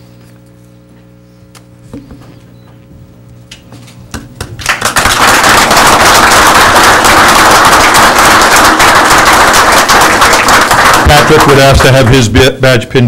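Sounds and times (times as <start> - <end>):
audience applauding: 4.6 - 12.3.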